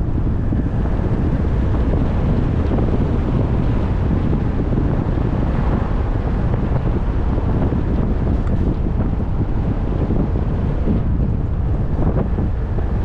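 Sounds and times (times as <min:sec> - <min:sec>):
car driving rumble: 0:00.0 - 0:13.0
road noise: 0:00.0 - 0:13.0
wind buffeting microphone: 0:00.0 - 0:13.0.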